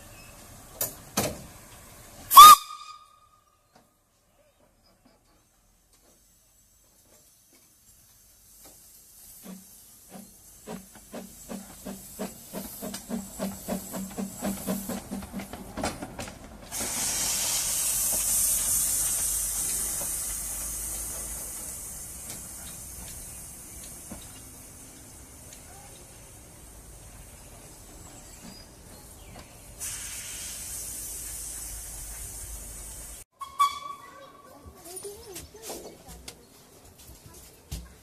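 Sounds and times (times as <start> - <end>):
steam locomotive chuffing: 0.9 - 3.1, 7.8 - 34.2
loud steam hiss: 1.0 - 3.0, 6.2 - 15.1, 16.7 - 28.5, 29.1 - 33.3.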